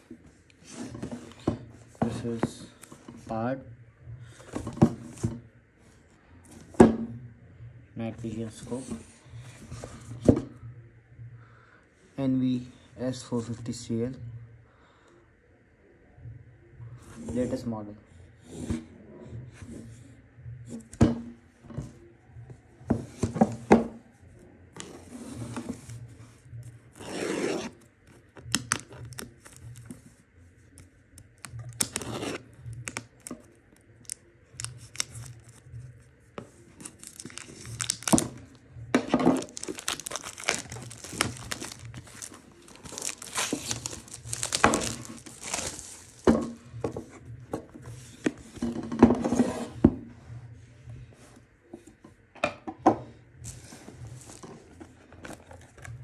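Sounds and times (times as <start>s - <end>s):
plastic wrapping tearing and crinkling: 25.5s - 30.0s, 30.8s - 36.0s, 36.8s - 38.6s, 39.2s - 46.4s.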